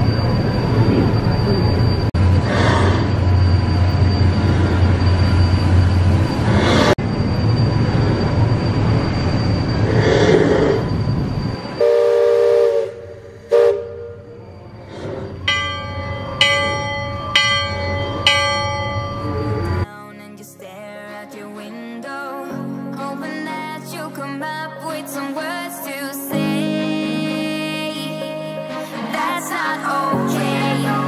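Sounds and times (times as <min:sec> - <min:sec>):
steady rumble: 0:00.0 - 0:11.8
steam whistle blasts: 0:11.6 - 0:14.5
brass bell ringing: 0:15.5 - 0:19.9.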